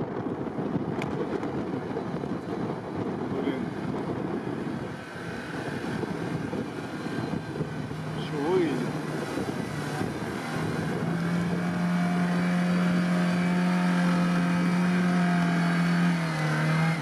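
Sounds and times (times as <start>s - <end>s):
car engine revving hard: 3.4s - 17.0s.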